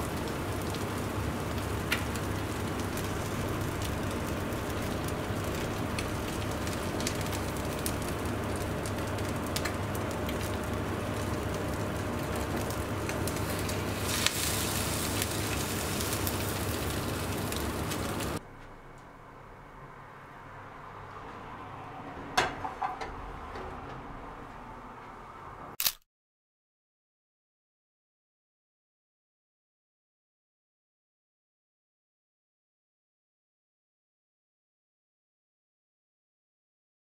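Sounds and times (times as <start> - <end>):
bread sizzling in a frying pan: 0.0 - 18.4
sharp click: 25.8 - 26.0.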